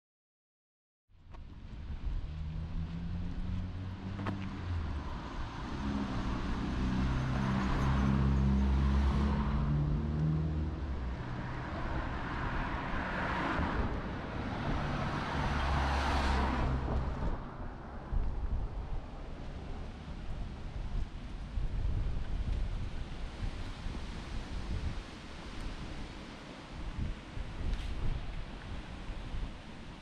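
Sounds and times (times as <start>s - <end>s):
cars driving past: 1.4s - 21.0s.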